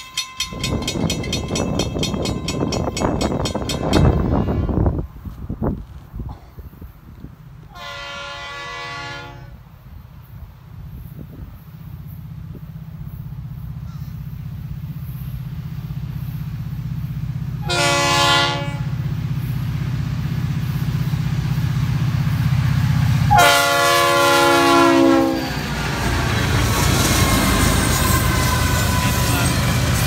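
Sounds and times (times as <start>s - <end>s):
diesel locomotive engines droning: 0.0s - 30.0s
wheel and rail noise: 0.0s - 30.0s
train air horn: 4.1s - 5.0s, 7.7s - 9.6s, 17.6s - 19.0s, 23.3s - 25.7s, 27.1s - 29.7s.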